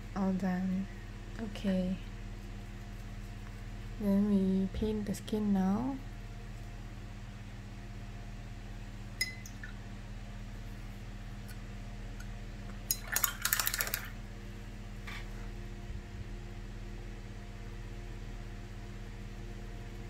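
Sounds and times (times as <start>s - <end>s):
low electrical hum: 0.0s - 20.0s
small clink: 9.2s - 9.7s.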